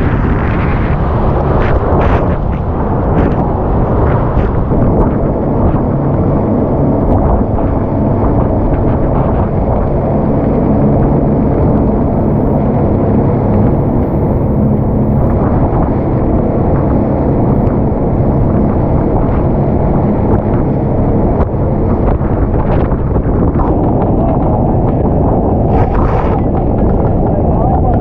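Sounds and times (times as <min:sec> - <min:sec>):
boat engine drone: 0:00.0 - 0:28.0
wind buffeting microphone: 0:00.0 - 0:28.0
rushing water: 0:17.5 - 0:28.0.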